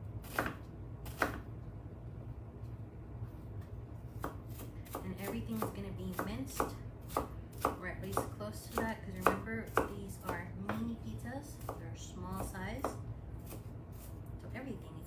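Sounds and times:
knife chopping on cutting board: 0.2 - 1.4, 4.1 - 10.9, 11.6 - 11.8, 12.4 - 14.1.

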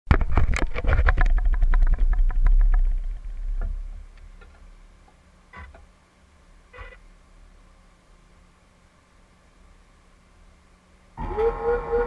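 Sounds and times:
low rumble: 0.1 - 4.8.

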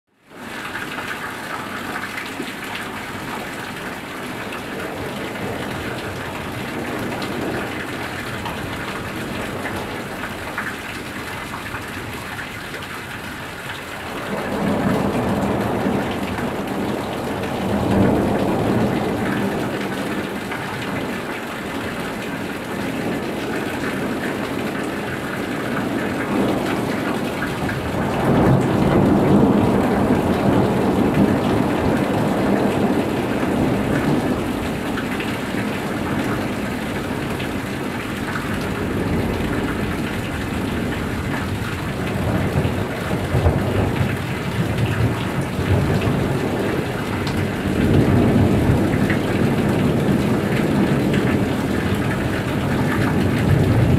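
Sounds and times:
heavy rain pouring: 0.1 - 53.9
roof runoff draining: 0.2 - 53.9
rolling thunder: 14.1 - 21.2, 21.8 - 53.9.

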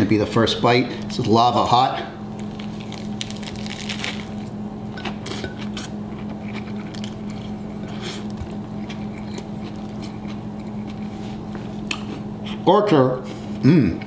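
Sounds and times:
chewing crisp lettuce: 2.4 - 12.6.

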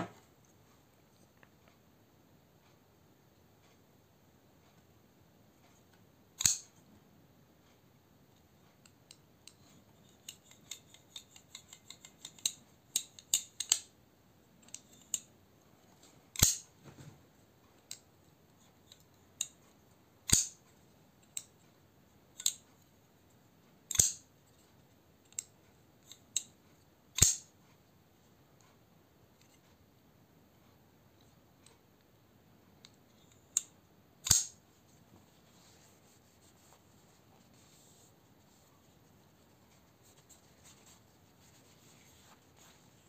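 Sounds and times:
metallic knife blade snaps: 16.4 - 16.6, 20.3 - 20.6, 23.9 - 24.2, 34.2 - 34.6
quick light knife clicks: 33.6 - 34.6.

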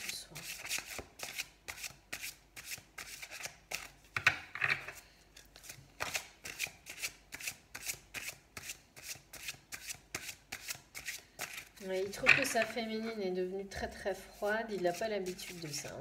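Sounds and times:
cards being shuffled: 4.8 - 12.8.

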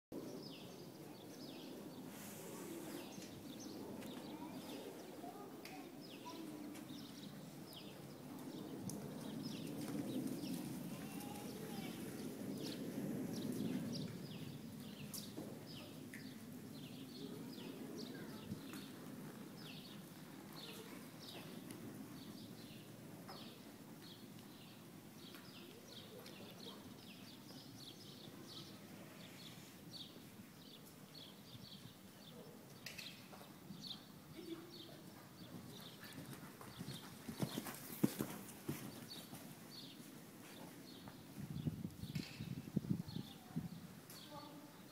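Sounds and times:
small birds chirping: 0.2 - 44.9
muffled horse hoofbeats on sand: 35.4 - 39.9.

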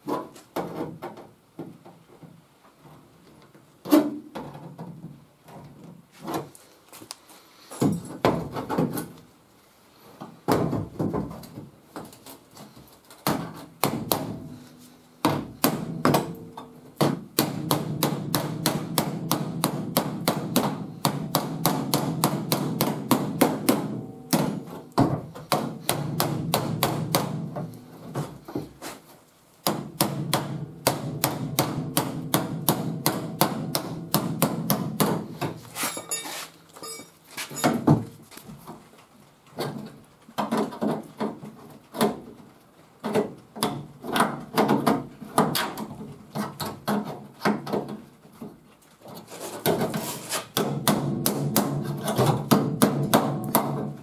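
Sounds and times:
hammer tapping on sheet metal: 13.2 - 14.6, 15.2 - 27.7, 29.6 - 35.6, 50.6 - 53.9.

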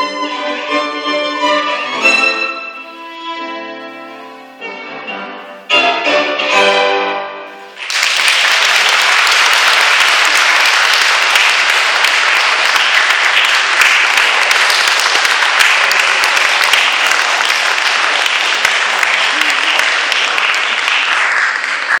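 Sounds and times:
audience applause: 7.7 - 22.0.

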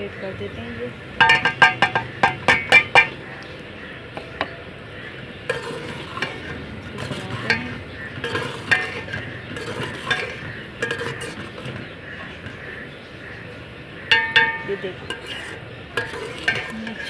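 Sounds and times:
metal spatula scraping a pot: 1.2 - 3.2, 5.4 - 12.7, 14.1 - 17.0
food sizzling: 5.4 - 12.7, 14.1 - 17.0
metal clink: 14.1 - 17.0.

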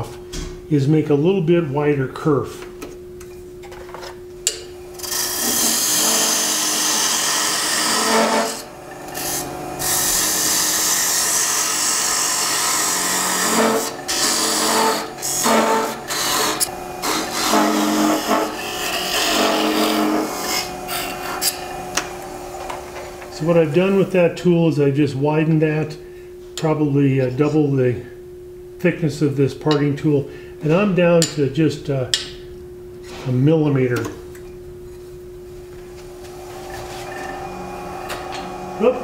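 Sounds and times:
lathe steady hum: 4.4 - 25.3, 35.8 - 39.0
parting tool scraping wood: 5.0 - 24.0.

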